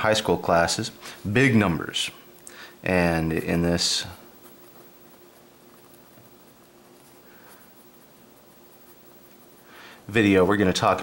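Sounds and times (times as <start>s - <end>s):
faint steady hum: 0.0s - 11.0s
pen scratching on paper: 3.3s - 9.7s.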